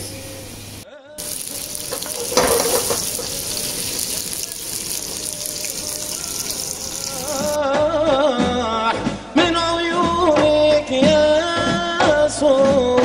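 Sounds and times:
onions sizzling in a pan: 0.0 - 7.6.

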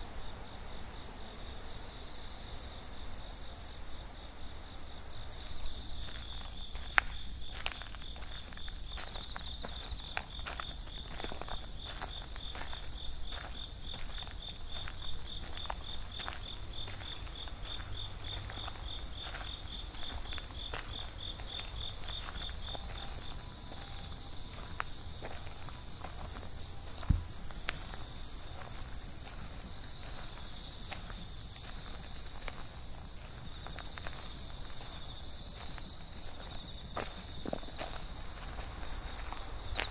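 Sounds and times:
crickets trilling: 0.0 - 39.9
footsteps tapping: 24.5 - 32.7.

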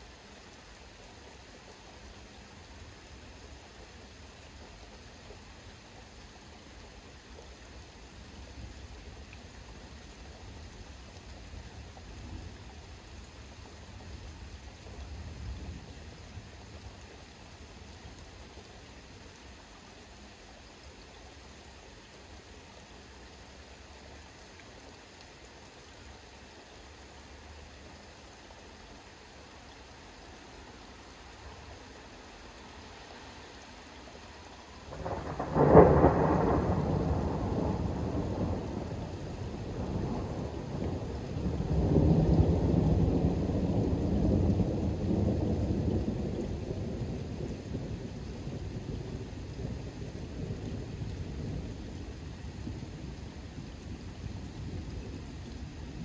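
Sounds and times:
faint steady hiss: 0.0 - 56.0
thunder rumbling: 34.9 - 53.3.

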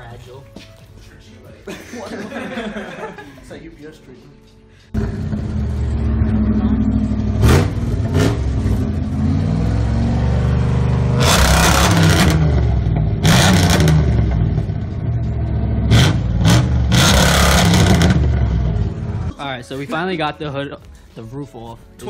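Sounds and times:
car engine idling: 5.0 - 9.5
engine revving: 5.0 - 19.3.

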